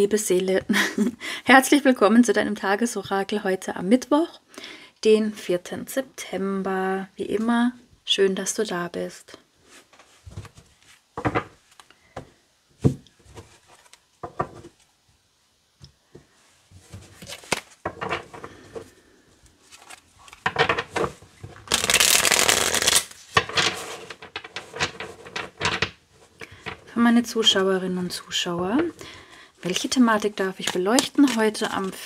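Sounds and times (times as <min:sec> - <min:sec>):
cards being shuffled by hand: 0:16.8 - 0:18.9, 0:19.6 - 0:27.7, 0:29.6 - 0:32.0.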